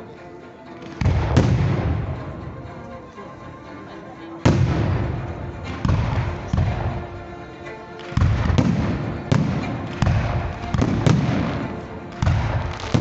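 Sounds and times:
fireworks bursting: 0:08.0 - 0:13.0.

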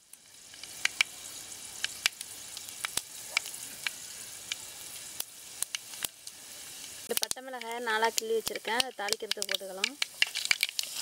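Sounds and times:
seeds sizzling in hot oil: 0:00.0 - 0:11.0
seeds popping: 0:07.1 - 0:11.0.

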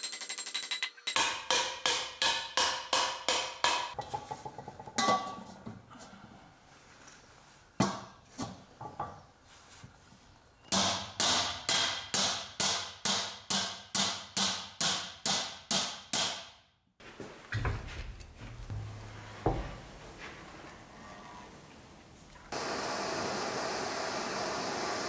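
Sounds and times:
hammer striking steel wok: 0:00.0 - 0:04.1, 0:10.8 - 0:16.5.

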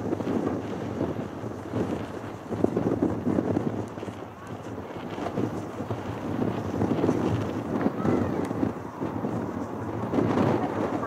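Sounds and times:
jet engines rumbling: 0:00.0 - 0:11.0
wind on microphone: 0:00.0 - 0:11.0.

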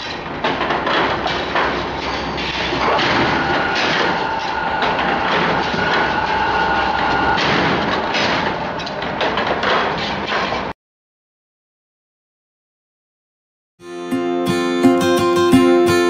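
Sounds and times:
high steady machine whine: 0:00.0 - 0:10.0
machine metallic clattering: 0:00.0 - 0:10.7.

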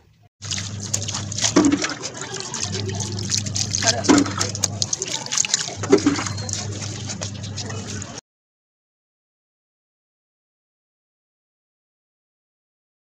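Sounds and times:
water pouring and splashing: 0:00.4 - 0:08.2.

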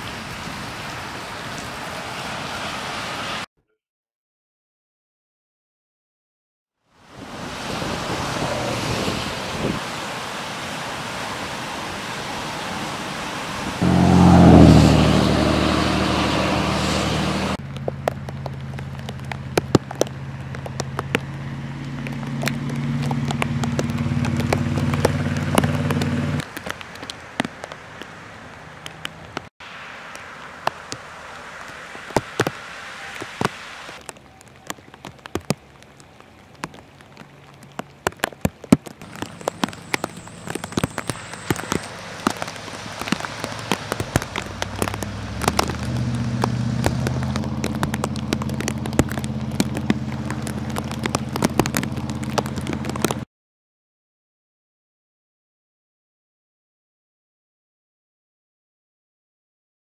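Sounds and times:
floodwater rushing: 0:00.0 - 0:03.5, 0:06.9 - 0:53.2
light rain: 0:00.0 - 0:03.5, 0:06.8 - 0:53.3
truck engine running: 0:13.8 - 0:26.4, 0:39.0 - 0:53.2.

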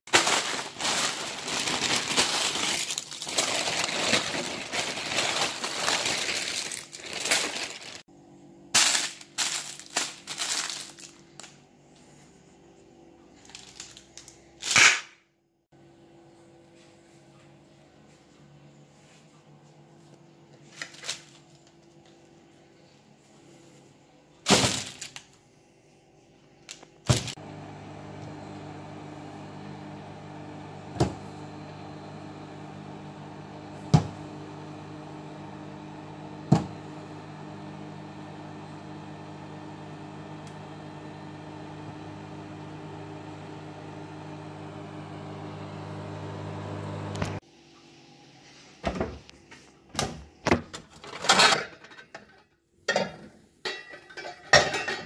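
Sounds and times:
microwave oven humming: 0:00.2 - 0:08.7, 0:15.8 - 0:23.0, 0:27.1 - 0:48.4.

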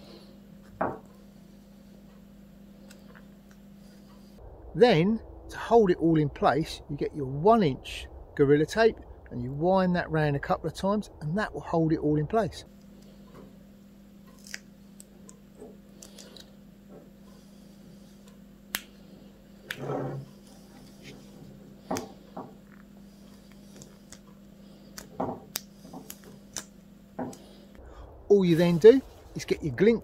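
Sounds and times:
faint steady hum: 0:00.0 - 0:30.0
tape crackling and rustling: 0:14.2 - 0:16.7, 0:19.6 - 0:27.8.

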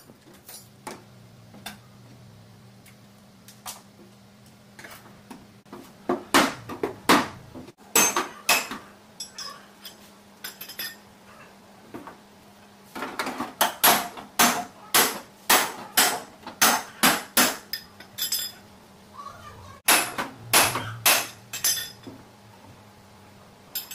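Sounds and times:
hammer striking metal: 0:07.9 - 0:09.5, 0:13.6 - 0:18.5, 0:19.9 - 0:22.1.

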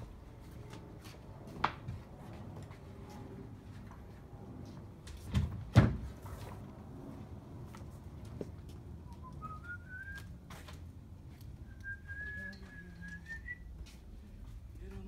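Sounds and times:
person whistling: 0:09.1 - 0:10.3, 0:11.7 - 0:13.7.

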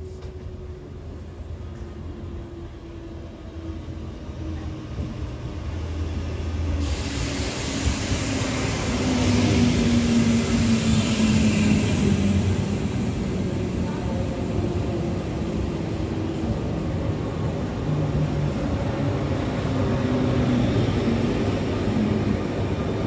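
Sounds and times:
train wheel and air rush: 0:04.6 - 0:23.0.

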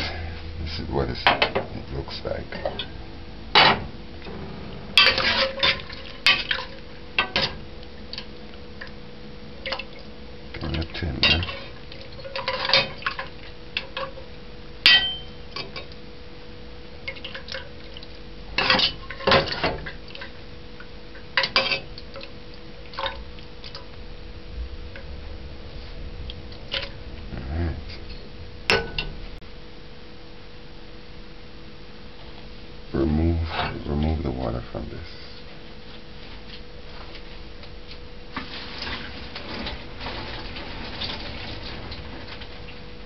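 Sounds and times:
faint steady hum: 0:00.0 - 0:43.0
metal spoon scraping metal pot: 0:05.0 - 0:06.7.

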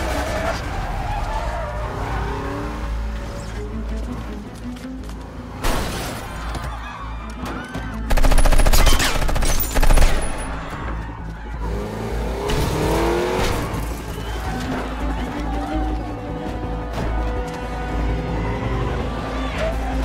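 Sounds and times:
car sounds: 0:00.0 - 0:08.1, 0:10.0 - 0:20.0
film score music: 0:00.0 - 0:20.0
automatic rifle fire: 0:08.1 - 0:10.5.

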